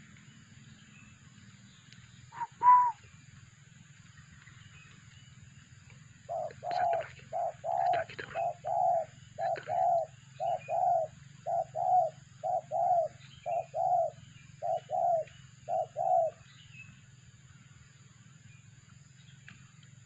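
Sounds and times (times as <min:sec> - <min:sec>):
dove cooing: 0:02.4 - 0:03.0, 0:06.2 - 0:16.4.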